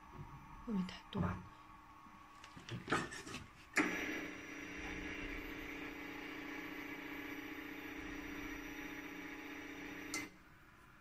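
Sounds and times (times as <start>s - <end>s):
motor hum: 3.8s - 10.4s.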